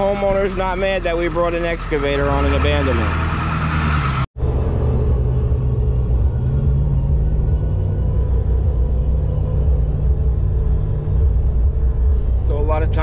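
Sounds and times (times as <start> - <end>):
road and engine rumble in cab: 0.0 - 13.0.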